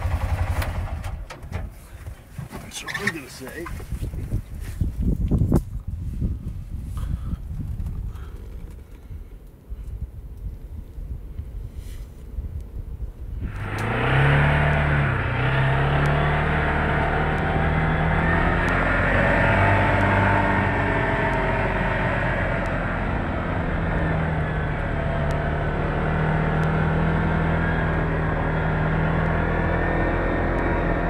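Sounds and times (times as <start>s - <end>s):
four-wheeler engine running: 0.0s - 3.8s, 13.4s - 31.0s.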